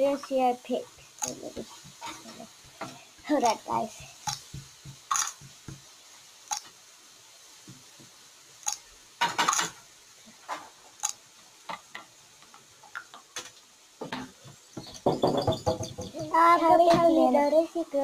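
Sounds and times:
small hard objects clicking: 4.2 - 5.7.

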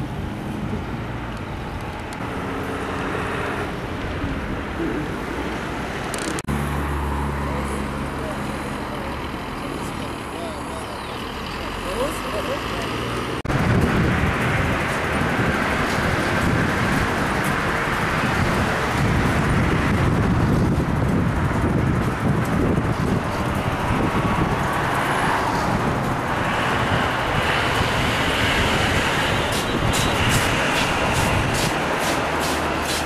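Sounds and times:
road traffic noise: 0.0 - 33.0.

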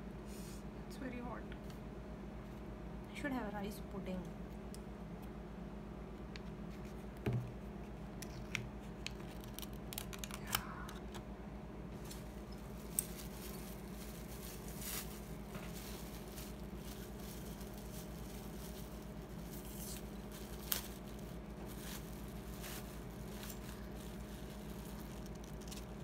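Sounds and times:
low electrical hum: 0.0 - 26.0
plastic packaging crinkling: 9.0 - 10.7, 12.0 - 26.0.

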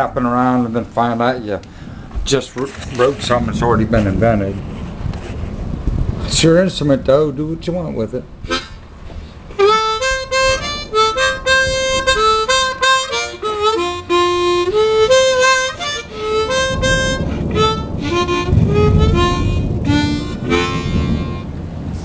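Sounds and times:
low rushing noise: 0.0 - 22.0
harmonica melody: 8.4 - 8.8, 9.6 - 21.5.

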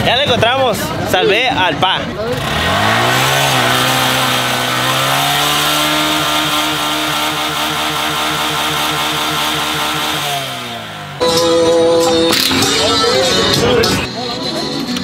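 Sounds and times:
motorcycle engine revving: 2.0 - 14.1.

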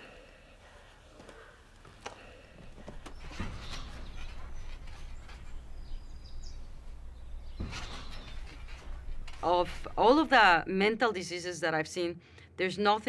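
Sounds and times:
sharp knocks and rustles: 2.0 - 10.6
bird chirping: 2.7 - 10.6.

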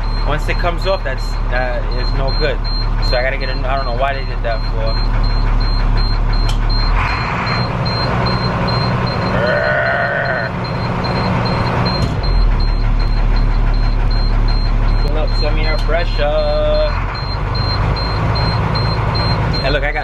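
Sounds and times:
diesel bus engine idling: 0.0 - 20.0.

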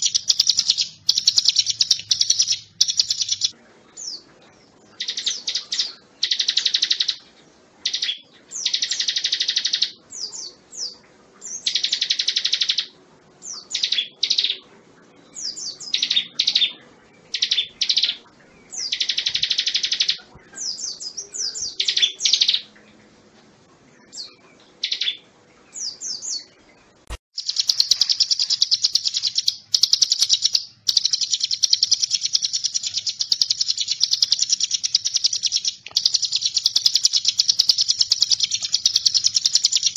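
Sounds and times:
bird chirps: 0.0 - 23.0, 23.9 - 39.9
bird singing trills: 0.0 - 23.0, 23.9 - 39.9.

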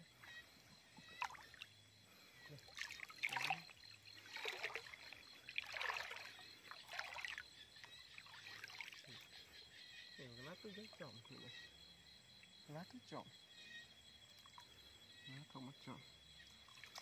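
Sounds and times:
river water sloshing and splashing: 1.0 - 1.8, 2.5 - 9.4, 16.5 - 17.0.

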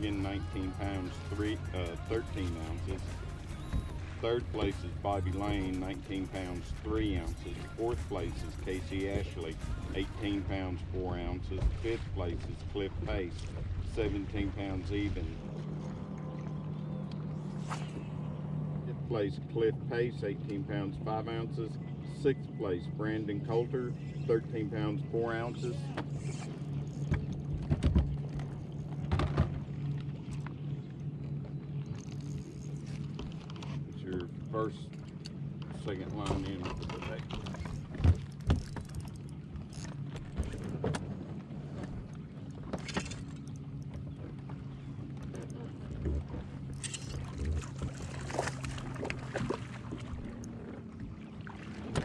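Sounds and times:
steady low hum: 0.0 - 51.7.

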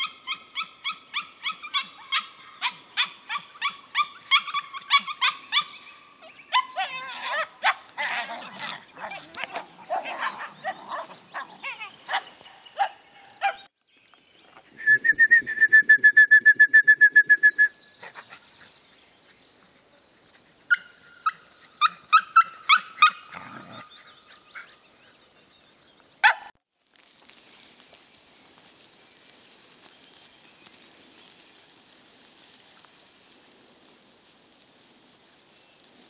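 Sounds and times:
small dogs yipping and barking: 0.0 - 13.7, 17.9 - 25.2, 26.2 - 26.6.

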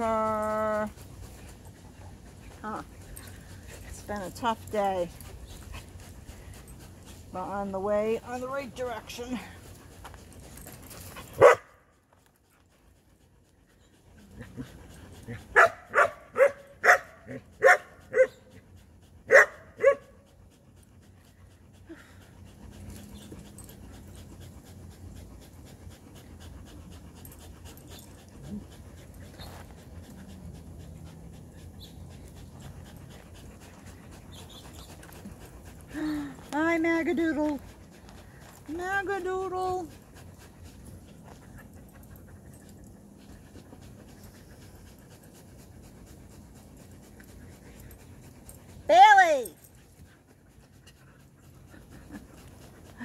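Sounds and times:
dog panting: 0.0 - 53.0
dog barking: 11.4 - 11.7, 15.6 - 18.3, 19.3 - 20.0.

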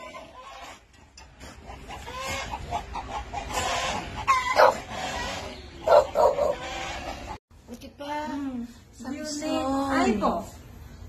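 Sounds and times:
dogs whining and yelping: 0.0 - 7.2.

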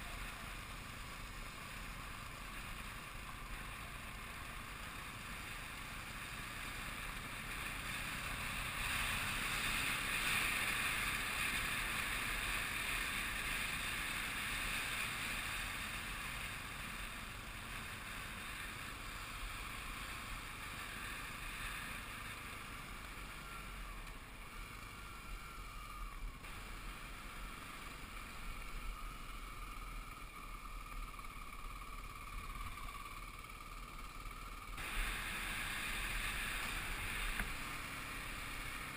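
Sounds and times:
dirt bike engine running: 0.0 - 38.9.

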